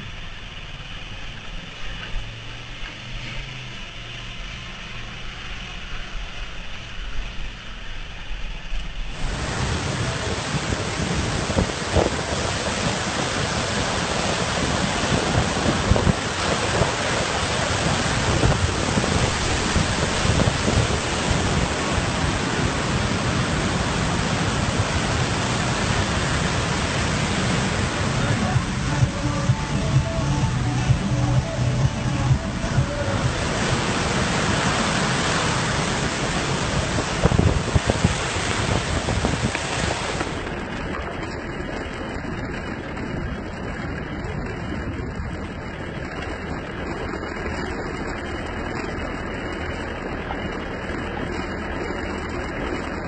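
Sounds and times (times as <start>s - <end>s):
motorcycle engine running: 0.0s - 53.0s
waterfall crashing onto rocks: 9.0s - 47.6s.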